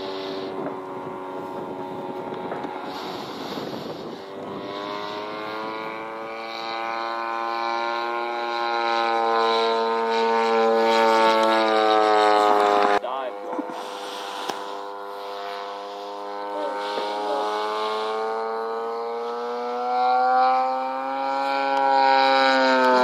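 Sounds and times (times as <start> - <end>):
model plane engine running: 0.0 - 23.0.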